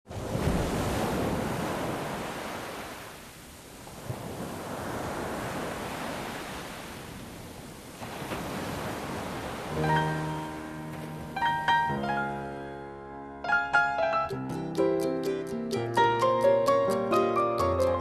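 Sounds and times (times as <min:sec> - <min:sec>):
ocean waves washing in: 0:00.1 - 0:13.0.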